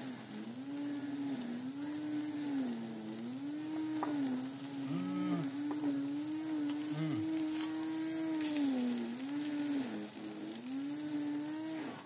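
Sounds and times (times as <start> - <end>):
small motor droning: 0.0 - 12.0.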